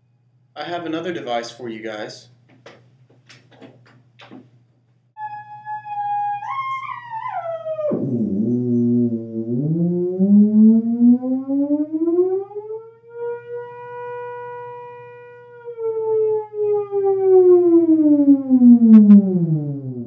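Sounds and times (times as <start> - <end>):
theremin wail: 5.2 - 20.0.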